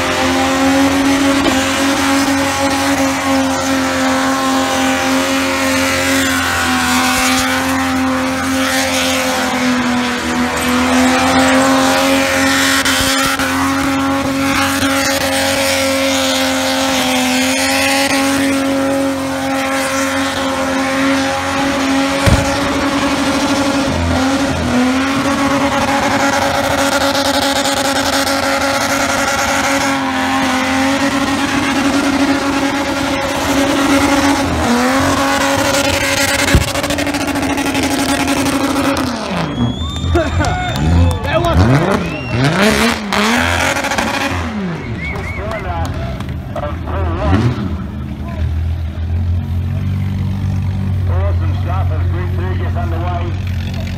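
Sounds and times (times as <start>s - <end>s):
engine at high revs: 0.0s - 53.9s
sharp bang: 22.2s - 23.8s, 36.2s - 37.2s.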